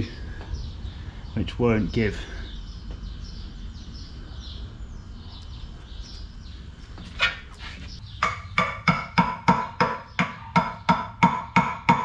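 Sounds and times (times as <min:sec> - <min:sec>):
bird chirps: 0:00.0 - 0:08.8.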